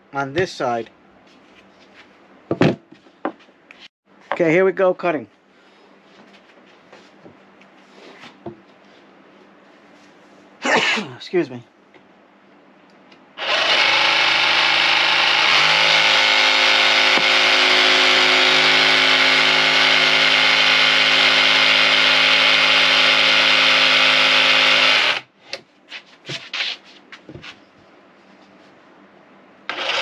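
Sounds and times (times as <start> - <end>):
jigsaw cutting wood: 13.4 - 25.3, 29.7 - 30.0.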